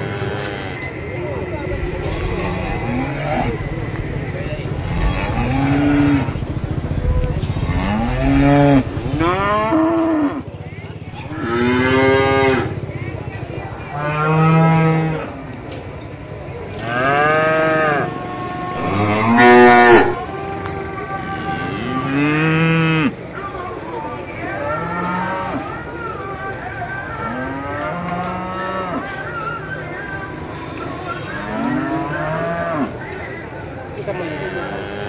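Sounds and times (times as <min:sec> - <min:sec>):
cattle mooing: 0:00.0 - 0:01.0, 0:01.9 - 0:10.5, 0:11.2 - 0:12.8, 0:16.9 - 0:20.2, 0:21.8 - 0:23.2, 0:31.4 - 0:33.0, 0:34.2 - 0:35.0
low steady rumble: 0:00.0 - 0:15.2.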